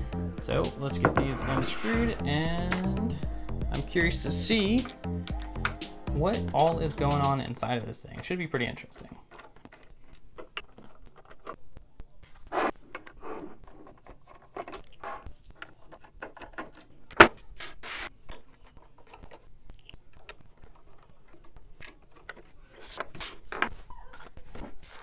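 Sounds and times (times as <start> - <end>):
small clicks and scrapes: 9.2 - 11.6, 12.2 - 25.0.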